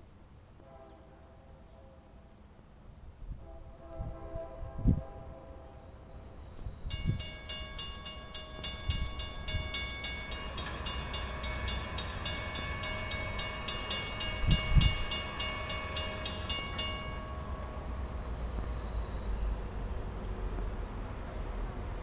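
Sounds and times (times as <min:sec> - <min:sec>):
railroad crossing bell ringing: 0:06.7 - 0:19.7.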